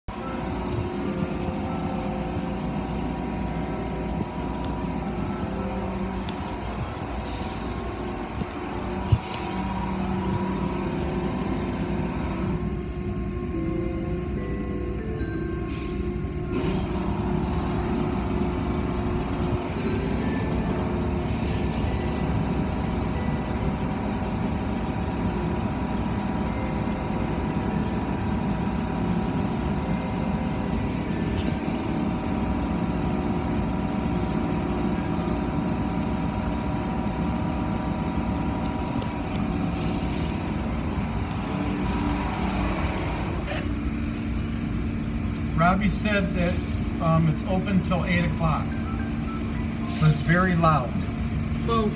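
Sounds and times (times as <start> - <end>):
low rumble of wash machinery: 0.1 - 51.9.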